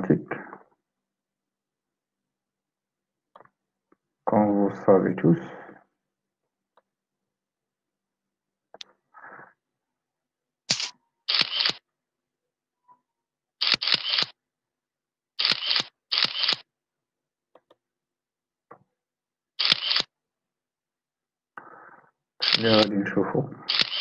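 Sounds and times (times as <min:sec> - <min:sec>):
short dry noise bursts: 0:10.7 - 0:11.8, 0:13.6 - 0:14.3, 0:15.4 - 0:16.6.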